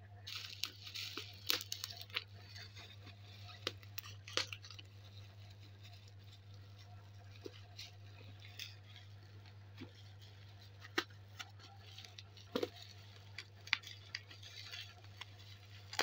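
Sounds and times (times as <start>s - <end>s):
plastic wrapping crinkling: 0.2s - 16.0s.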